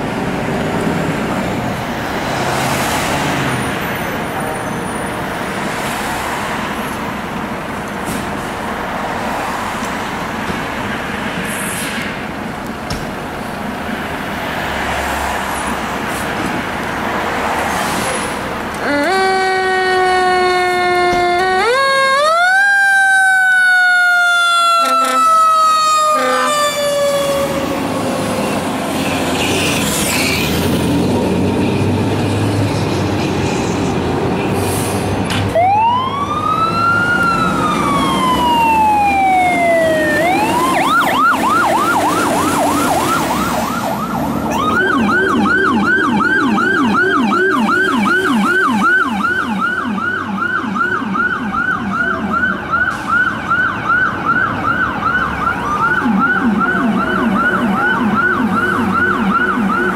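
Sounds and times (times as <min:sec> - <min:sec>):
yelp siren: 0:18.8 - 0:28.8, 0:35.6 - 0:59.9
siren wailing: 0:18.8 - 0:29.8, 0:35.5 - 0:59.9.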